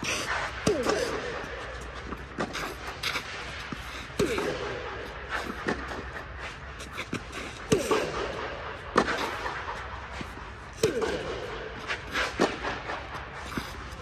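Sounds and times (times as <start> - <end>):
racket hitting tennis ball: 0.0 - 6.2, 6.8 - 14.0
tennis ball bouncing: 6.9 - 13.9.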